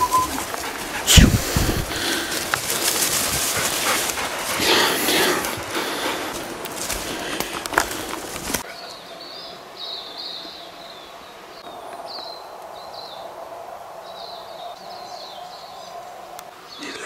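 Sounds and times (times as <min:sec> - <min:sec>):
people pushing through undergrowth: 0:00.0 - 0:08.7
small birds chirping: 0:00.0 - 0:13.4, 0:14.0 - 0:17.0.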